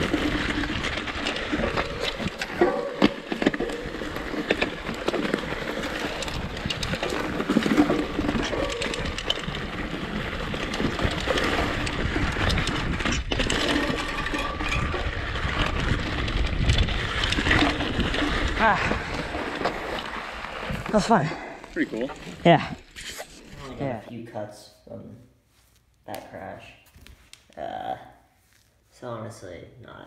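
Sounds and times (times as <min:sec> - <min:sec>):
bike rattling over bumps: 0:00.0 - 0:23.7
bike tyres rumbling on dirt: 0:00.0 - 0:23.9.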